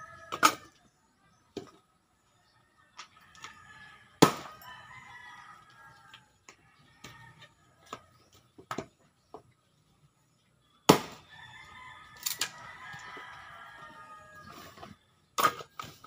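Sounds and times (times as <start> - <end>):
rooster crowing: 3.2 - 7.9, 11.3 - 14.8
axe chopping wood: 4.2 - 4.6, 10.9 - 11.2.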